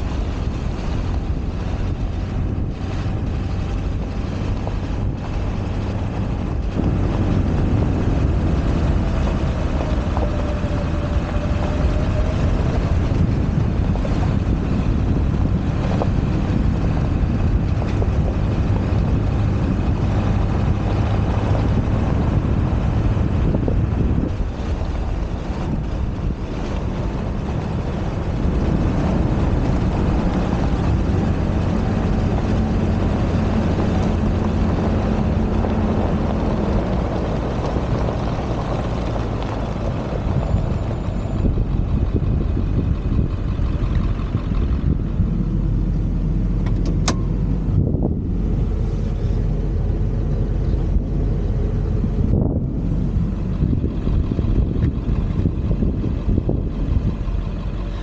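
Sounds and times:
pickup truck engine running: 0:00.0 - 0:58.0
wind and road noise: 0:00.0 - 0:58.0
sharp click: 0:46.6 - 0:47.3.

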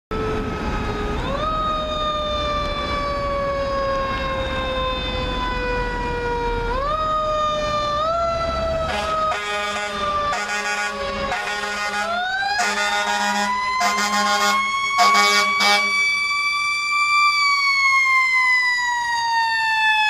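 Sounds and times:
mechanical siren wailing: 0:00.1 - 0:20.0
air horn blast: 0:08.9 - 0:16.0.

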